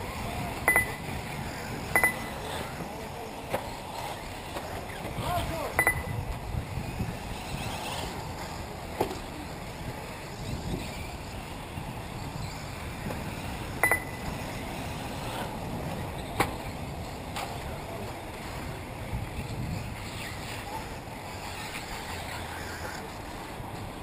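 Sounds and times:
wind rumble on microphone: 0.0s - 24.0s
short ringing tone: 0.7s - 1.0s, 2.0s - 2.4s, 5.8s - 6.1s, 13.8s - 14.3s.

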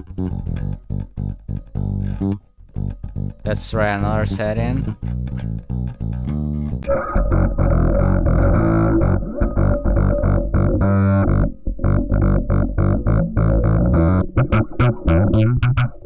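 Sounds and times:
distorted filtered bass notes: 0.0s - 16.0s.

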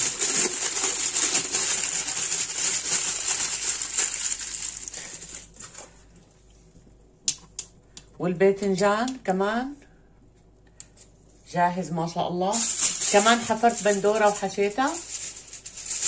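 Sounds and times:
aluminium foil crinkling: 0.0s - 6.2s, 12.5s - 16.0s.

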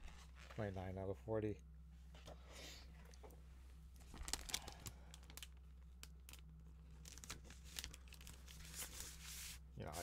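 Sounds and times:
faint low hum: 0.0s - 10.0s
paper rustling and crinkling: 4.0s - 5.5s, 7.0s - 10.0s.

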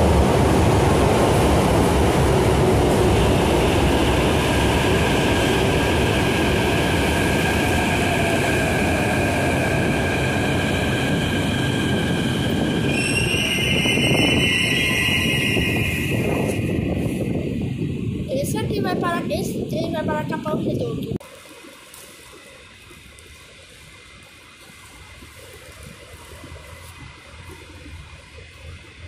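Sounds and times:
train wheels rumbling on rail: 0.0s - 21.1s
high squealing tones: 10.8s - 16.8s.

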